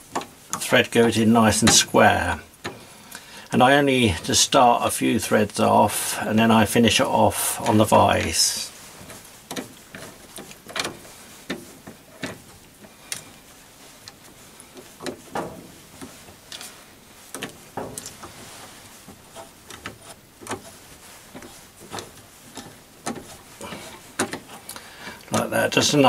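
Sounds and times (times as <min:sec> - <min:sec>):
light metallic clicks and knocks: 0:09.0 - 0:13.4, 0:14.0 - 0:18.4, 0:19.1 - 0:25.9.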